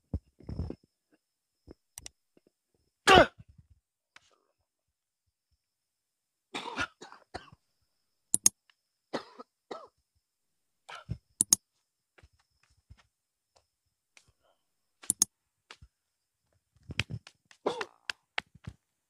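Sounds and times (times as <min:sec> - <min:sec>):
man coughing: 0:06.6 - 0:07.5
sharp clicks: 0:08.3 - 0:08.6, 0:11.4 - 0:11.6, 0:15.0 - 0:15.3.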